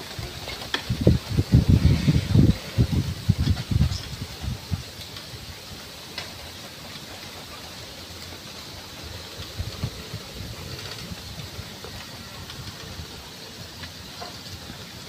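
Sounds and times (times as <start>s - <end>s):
wind on microphone: 0.1s - 5.6s.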